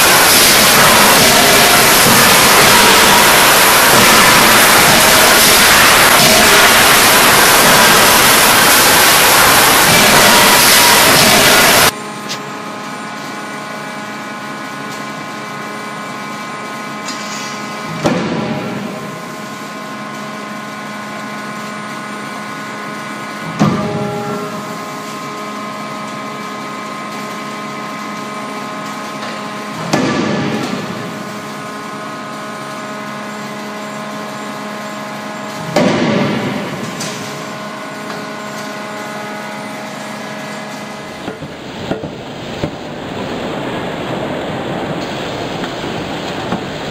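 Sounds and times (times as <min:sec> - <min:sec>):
forging hammer striking hot steel: 0:00.0 - 0:11.9, 0:23.6 - 0:24.9, 0:29.2 - 0:31.4, 0:35.6 - 0:38.3
steady machine hum: 0:00.0 - 0:46.9.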